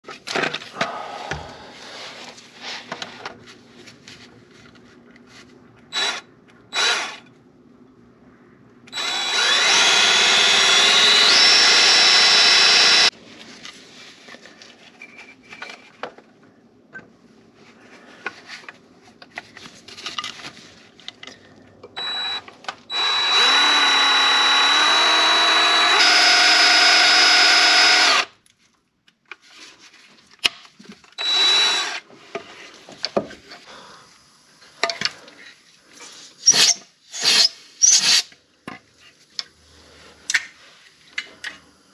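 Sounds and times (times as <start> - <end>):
power drill whining: 5.9 - 7.2, 8.9 - 13.1, 22.0 - 28.3, 31.2 - 32.0.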